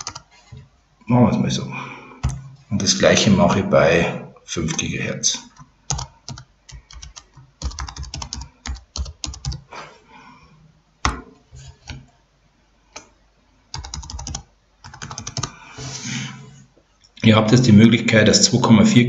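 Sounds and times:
typing on computer keyboard: 0:00.0 - 0:00.3, 0:05.5 - 0:09.7, 0:13.7 - 0:15.6.

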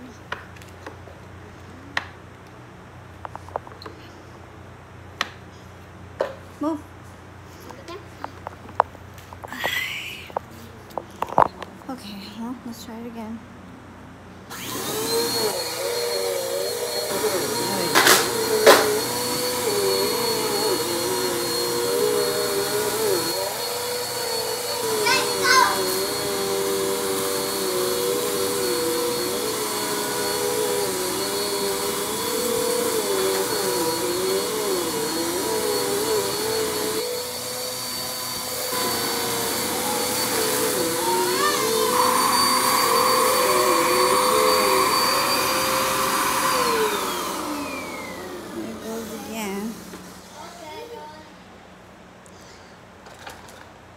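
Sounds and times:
vacuum cleaner running: 0:14.5 - 0:50.8.

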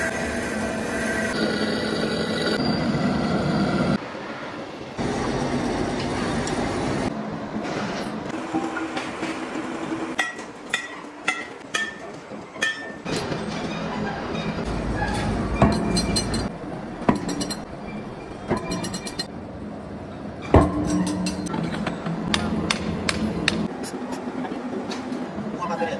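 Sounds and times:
metal clinks and knocks: 0:15.2 - 0:16.5, 0:17.1 - 0:19.3, 0:20.5 - 0:22.0.

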